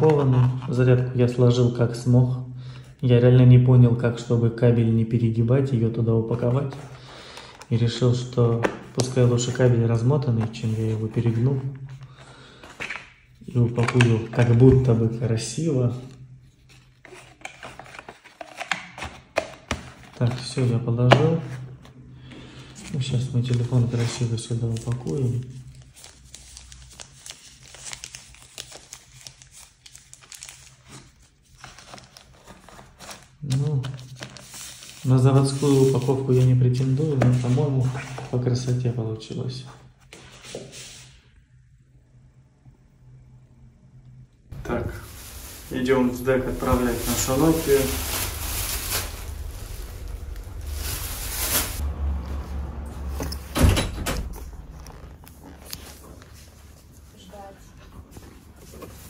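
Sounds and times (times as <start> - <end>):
tissue paper crinkling: 16.4 - 18.7, 23.5 - 36.5, 44.5 - 51.8
sliding doors rushing: 52.0 - 54.7.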